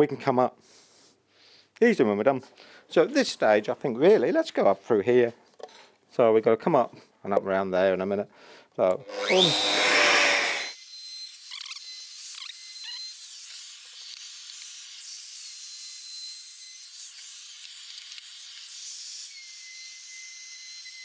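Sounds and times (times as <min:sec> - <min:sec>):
handheld router running: 0:09.0 - 0:10.8.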